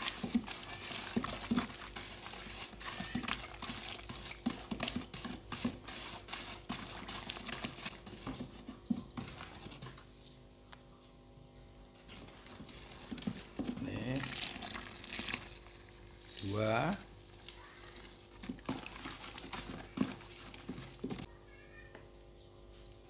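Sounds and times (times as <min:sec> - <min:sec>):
stick knocking against bucket: 0:00.0 - 0:10.0, 0:12.1 - 0:14.6, 0:18.3 - 0:21.3
liquid swishing in bucket: 0:00.0 - 0:10.5, 0:11.9 - 0:21.3.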